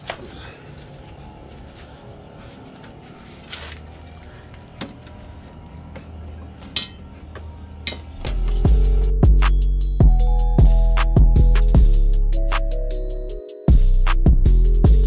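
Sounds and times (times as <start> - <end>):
metal bar clinking and knocking: 6.8 - 7.0
hip-hop music with heavy bass: 8.2 - 15.0.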